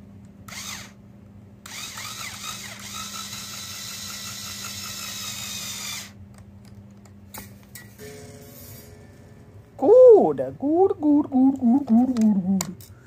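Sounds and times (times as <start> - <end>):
small electric motor whining: 0.5 - 1.0, 1.6 - 6.2.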